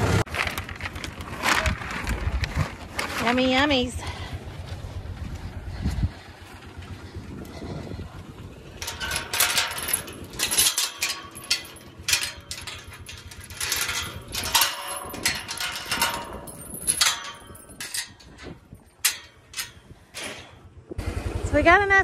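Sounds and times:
chain rattling against metal gate: 8.7s - 20.7s.

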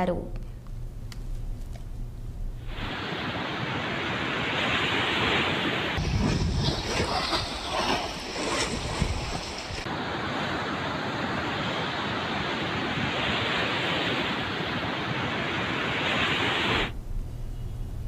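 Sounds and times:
wind on microphone: 2.7s - 17.0s.

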